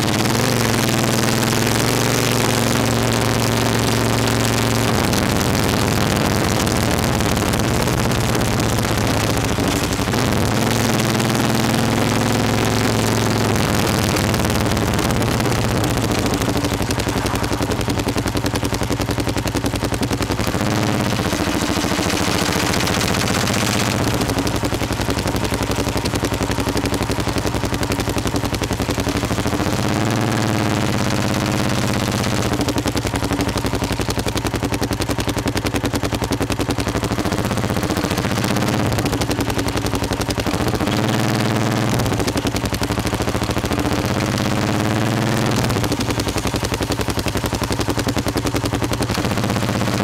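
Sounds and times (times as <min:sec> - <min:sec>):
motorcycle engine running: 0:00.0 - 0:50.0
road noise: 0:00.0 - 0:50.0.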